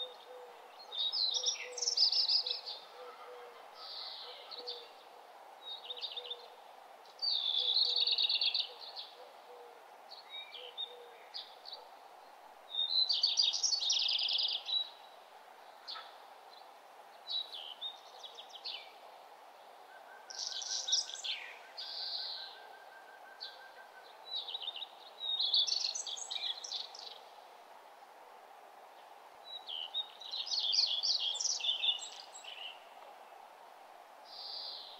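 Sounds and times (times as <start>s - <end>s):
birds singing: 0.0s - 3.1s, 7.1s - 11.9s, 12.7s - 15.0s, 19.9s - 27.3s, 29.5s - 32.9s.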